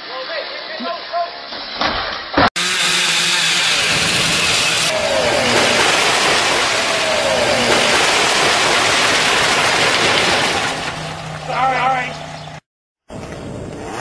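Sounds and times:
chainsaw engine running: 2.6 - 12.1.

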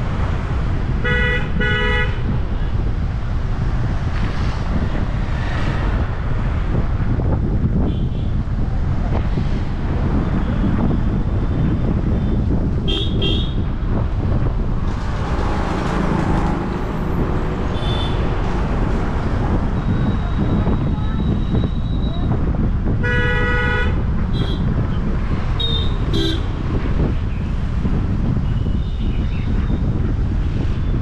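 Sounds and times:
car engine and road noise: 0.0 - 31.0
car horn toots: 12.9 - 13.6, 23.0 - 24.6, 25.6 - 26.5.

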